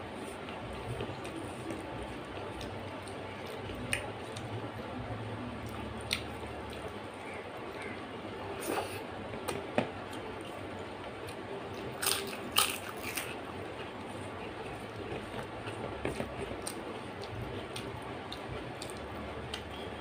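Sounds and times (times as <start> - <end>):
chewing clicks and smacks: 5.6 - 7.0, 14.6 - 19.9.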